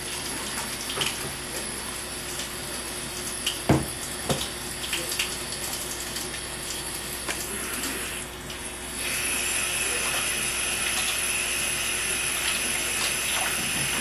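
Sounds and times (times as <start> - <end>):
tap running into sink: 3.4 - 5.3, 12.5 - 14.0
short knocks at sink: 3.7 - 4.5.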